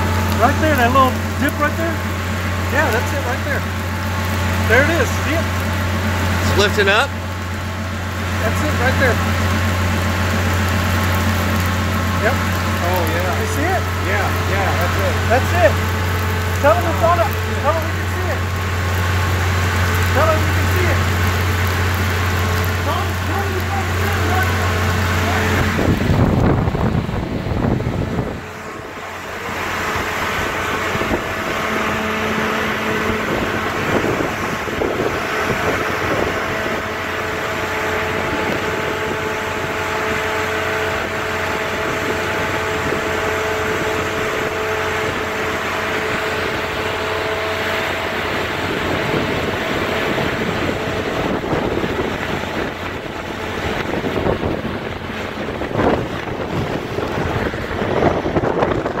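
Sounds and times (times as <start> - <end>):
wind on microphone: 24.8 - 59.0.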